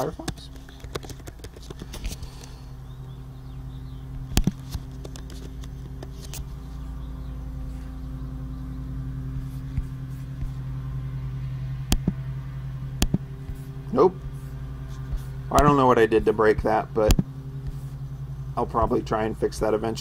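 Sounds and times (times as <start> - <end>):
low mechanical hum: 0.0 - 20.0
sharp clicks: 0.2 - 2.6, 4.1 - 6.5, 11.9 - 12.2, 13.0 - 13.3.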